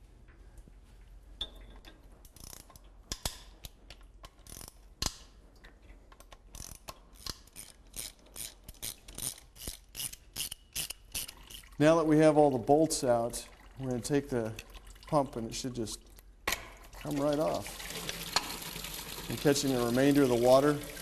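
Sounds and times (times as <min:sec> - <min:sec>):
hand ratchet clicking: 0:02.3 - 0:05.2, 0:06.2 - 0:11.6.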